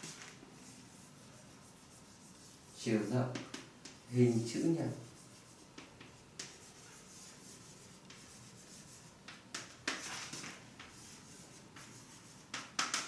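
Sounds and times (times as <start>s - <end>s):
writing scratching: 5.0s - 13.0s.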